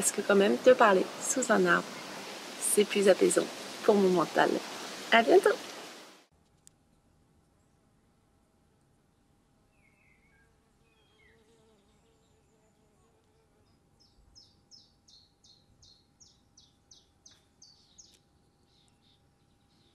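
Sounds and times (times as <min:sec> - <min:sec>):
flying insect buzzing: 0:00.0 - 0:06.1, 0:10.5 - 0:13.8
small bird singing: 0:09.7 - 0:12.9, 0:13.6 - 0:19.9.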